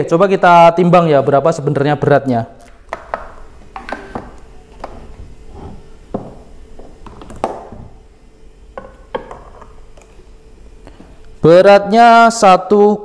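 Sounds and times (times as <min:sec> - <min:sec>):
polisher knocking on plastic scale: 0:06.1 - 0:07.7.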